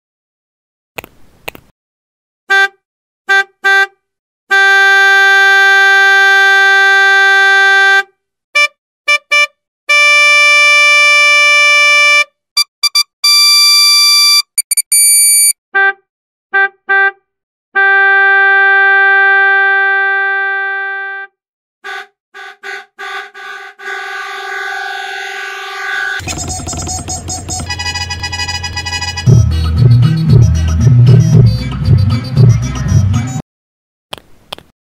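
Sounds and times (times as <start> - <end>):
car horn beeps and honks: 2.5 - 16.0, 16.6 - 17.2, 17.8 - 29.5.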